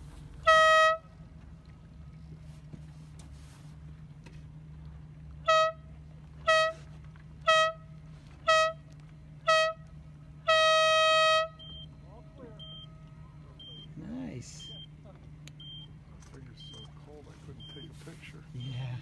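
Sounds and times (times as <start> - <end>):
horn blasts: 0.4 - 1.3, 5.4 - 11.9.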